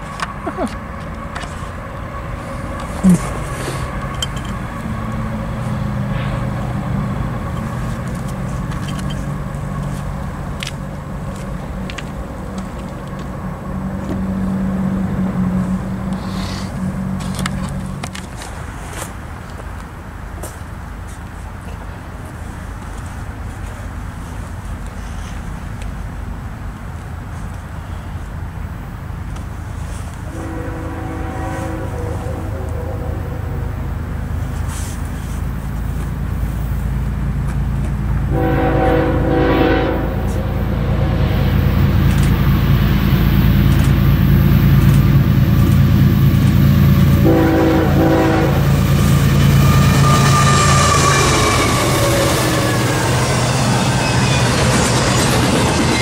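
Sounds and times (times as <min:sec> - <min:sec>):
diesel locomotive engines droning: 0:00.0 - 0:56.0
locomotive air horn blast: 0:30.2 - 0:35.5, 0:38.2 - 0:55.1.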